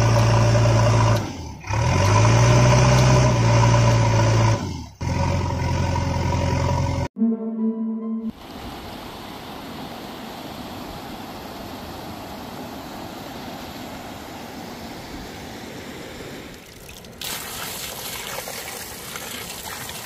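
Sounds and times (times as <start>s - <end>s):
water jet gushing onto mud: 16.5s - 20.0s
water trickling: 16.5s - 20.0s.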